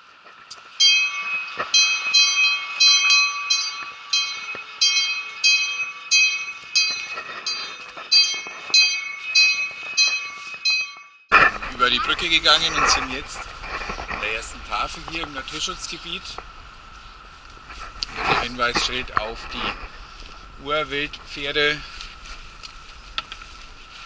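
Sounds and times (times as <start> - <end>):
metal bell being struck: 0.8 - 11.3.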